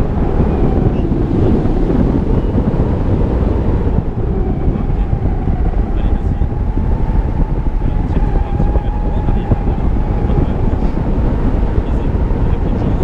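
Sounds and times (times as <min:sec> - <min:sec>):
wind rushing over microphone: 0:00.0 - 0:13.0
faint steady whistle: 0:02.2 - 0:02.8.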